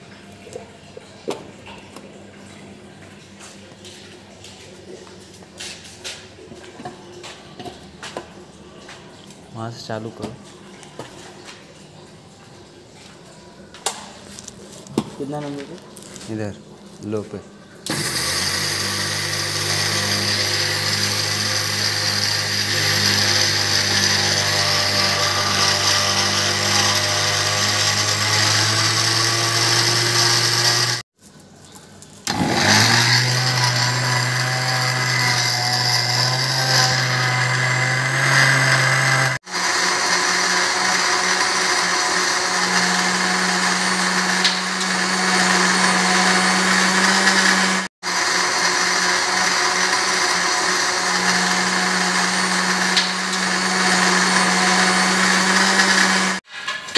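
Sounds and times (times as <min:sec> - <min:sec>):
mixer grinder motor whine: 0:17.8 - 0:31.1, 0:32.2 - 0:56.5.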